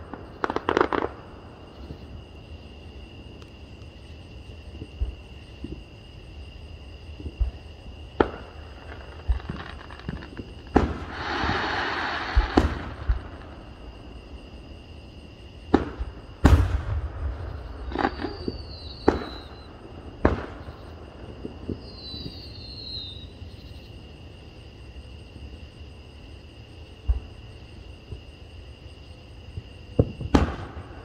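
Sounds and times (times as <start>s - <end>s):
faint falling whistles: 17.8s - 19.7s, 21.8s - 23.3s.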